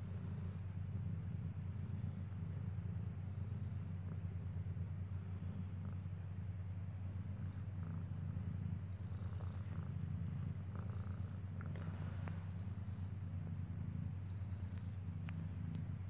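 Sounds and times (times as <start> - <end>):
cat purring: 0.0 - 16.0
faint clicks: 14.6 - 16.0.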